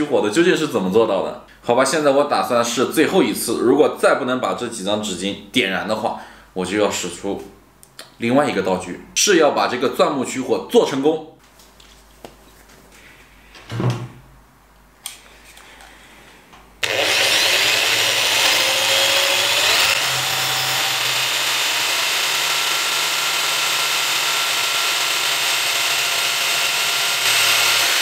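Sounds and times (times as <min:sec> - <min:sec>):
electric drill motor whine: 0:16.8 - 0:28.0
wood rubbing on wood: 0:16.8 - 0:28.0.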